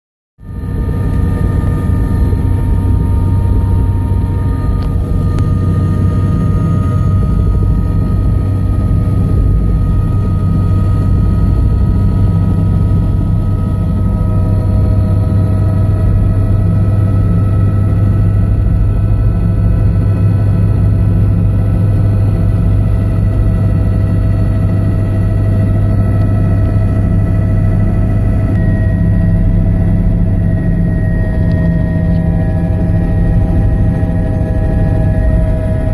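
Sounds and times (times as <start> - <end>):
helicopter engine and rotors: 0.4 - 35.9.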